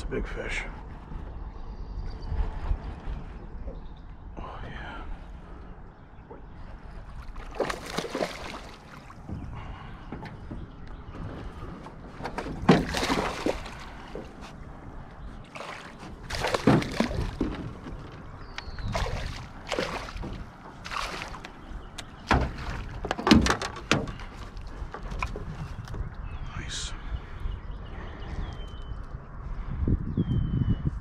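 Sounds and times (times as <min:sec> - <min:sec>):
fish splashing in water: 0:07.3 - 0:09.2, 0:12.7 - 0:14.3, 0:15.5 - 0:21.6.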